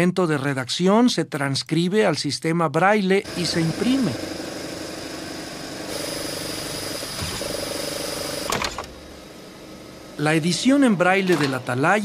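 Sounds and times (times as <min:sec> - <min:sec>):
embossing printer running: 0:03.3 - 0:12.0.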